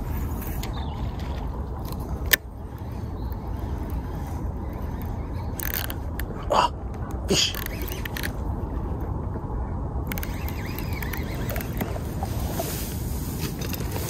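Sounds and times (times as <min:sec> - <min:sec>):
wind rumble on microphone: 0:00.0 - 0:14.0
fishing reel click: 0:01.8 - 0:06.4, 0:07.5 - 0:08.4, 0:10.0 - 0:12.0.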